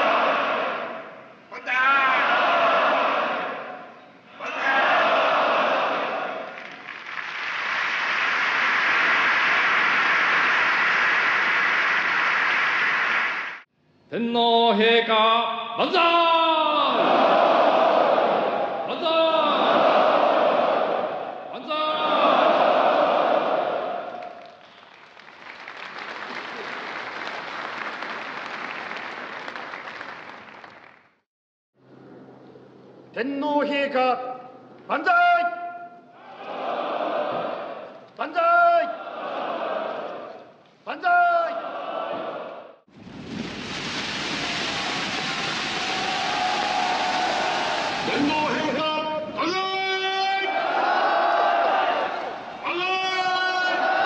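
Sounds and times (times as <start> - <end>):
crowd applauding: 6.5 - 13.6, 24.1 - 31.2, 44.4 - 48.8.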